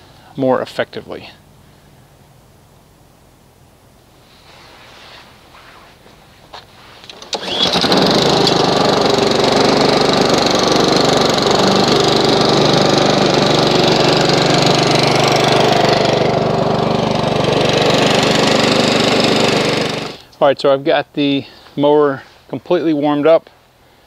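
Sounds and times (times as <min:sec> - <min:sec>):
lawn mower engine running: 0:07.1 - 0:20.2.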